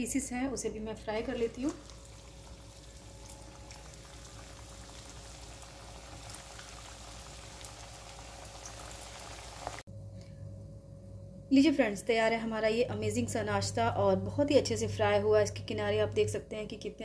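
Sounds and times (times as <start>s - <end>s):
oil sizzling and bubbling: 0.8s - 9.9s
small crackles: 1.5s - 9.8s.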